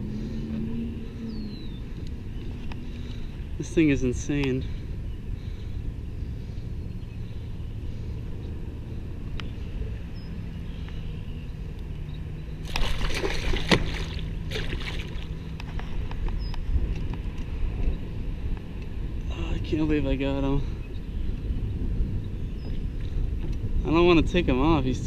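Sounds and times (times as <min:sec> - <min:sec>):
steady low rumble: 0:00.0 - 0:25.0
fish splashing at water surface: 0:12.6 - 0:15.3.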